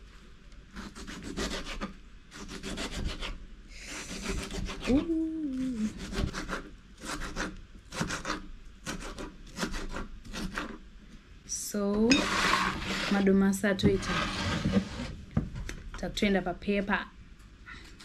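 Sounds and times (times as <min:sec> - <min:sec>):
sliding hum: 0:12.0 - 0:15.2.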